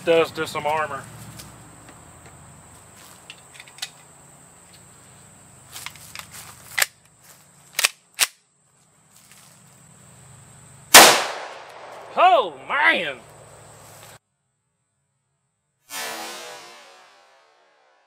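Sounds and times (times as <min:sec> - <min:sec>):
metallic clicks of pistol: 0:07.8 - 0:08.4
loud pistol shot: 0:10.9 - 0:12.2.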